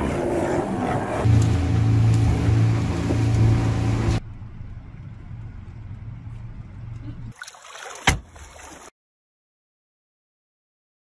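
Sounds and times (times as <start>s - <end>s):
boat engine drone: 0.0s - 7.3s
water noise: 0.0s - 8.9s.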